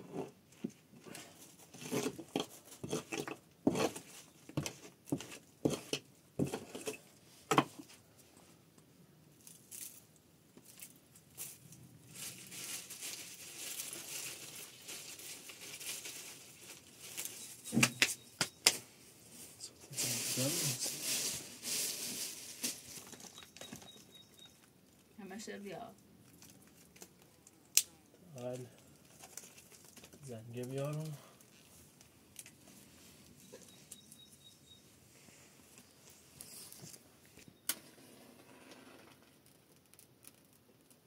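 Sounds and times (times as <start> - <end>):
objects being handled: 0.0 - 8.0, 10.6 - 25.1
steady hiss: 18.9 - 22.8.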